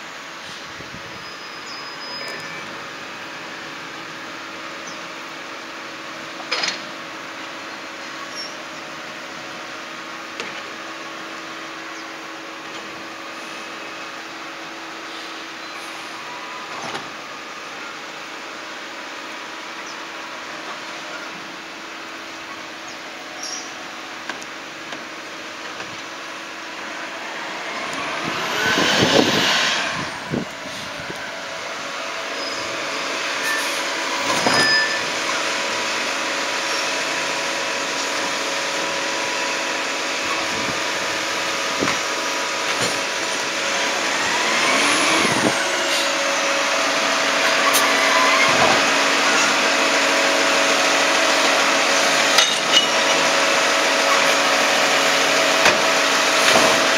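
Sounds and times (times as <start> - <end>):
garbage truck engine running: 0.0 - 56.9
loud rushes of noise: 22.2 - 56.9.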